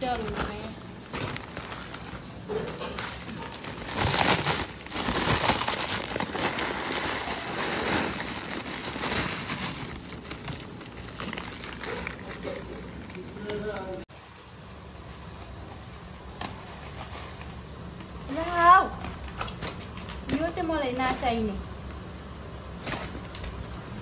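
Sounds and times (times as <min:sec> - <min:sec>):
plastic packet crinkling: 0:00.0 - 0:14.0.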